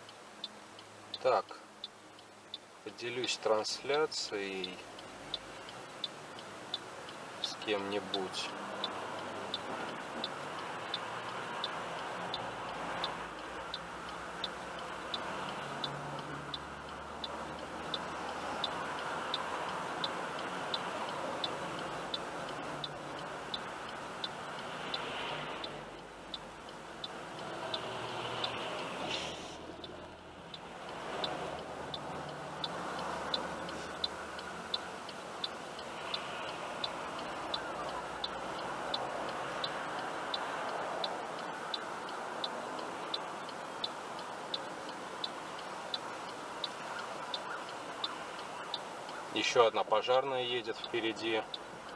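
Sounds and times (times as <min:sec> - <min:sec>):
car engine idling hum: 0:00.0 - 0:51.9
passing traffic: 0:00.0 - 0:51.9
turn signal ticking: 0:00.0 - 0:51.9.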